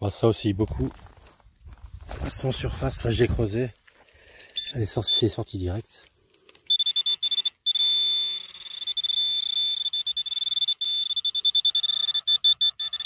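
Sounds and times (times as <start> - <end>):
metal detector pulsing beeps: 4.5 - 5.2, 6.7 - 13.0.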